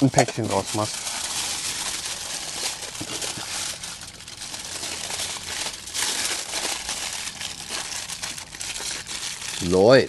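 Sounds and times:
aluminium foil crinkling: 0.0s - 10.0s.

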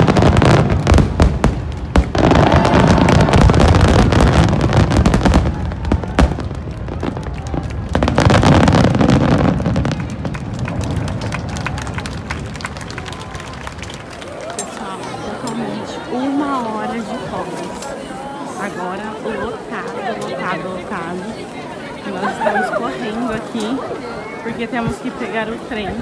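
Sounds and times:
firework crackling: 0.0s - 14.2s.

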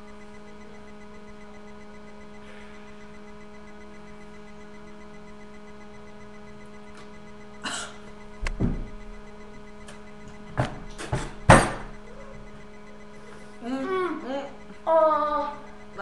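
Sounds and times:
boy coughing and sputtering: 7.6s - 8.1s.

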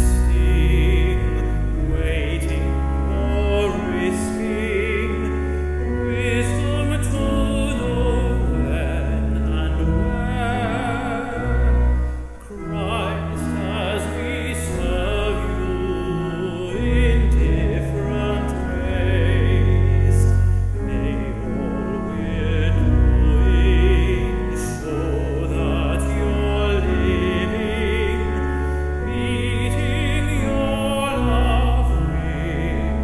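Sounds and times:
man singing a hymn: 0.0s - 33.0s
pipe organ chords: 0.0s - 33.0s.

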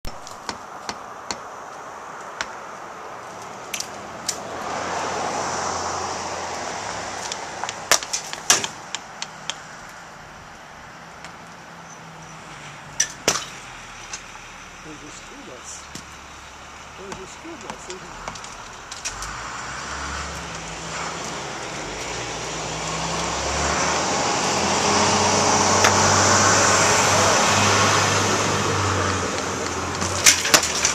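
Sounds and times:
vehicle passing: 1.5s - 30.9s
bricks knocking and clinking: 29.3s - 30.9s.

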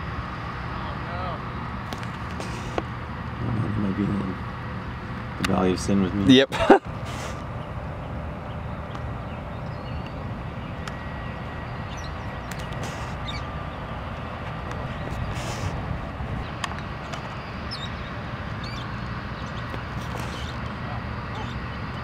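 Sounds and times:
low outdoor rumble: 0.0s - 22.0s
bird chirps: 8.5s - 13.9s, 17.6s - 20.6s, 21.3s - 22.0s.

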